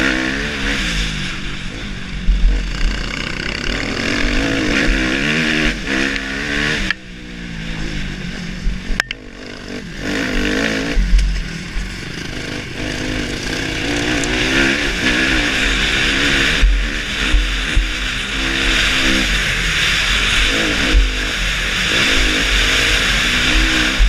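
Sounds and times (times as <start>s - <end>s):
motocross bike engine revving: 0.0s - 24.0s
sharp click: 9.0s - 9.2s.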